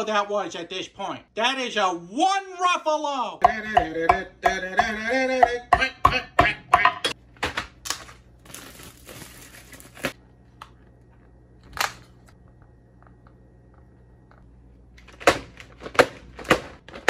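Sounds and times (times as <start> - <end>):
plastic wrapping crinkling: 7.8 - 10.2.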